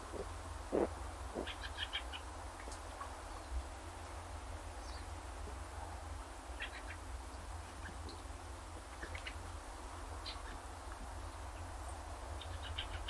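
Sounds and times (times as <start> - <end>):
small birds chirping: 0.0 - 2.3
low outdoor rumble: 0.0 - 13.0.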